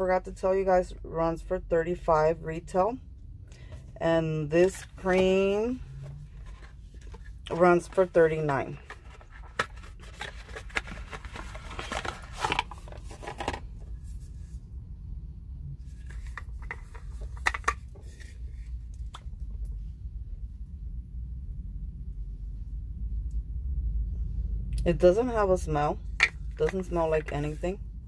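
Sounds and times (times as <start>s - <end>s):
low steady rumble: 0.0s - 28.0s
cardboard box being opened: 8.8s - 13.6s.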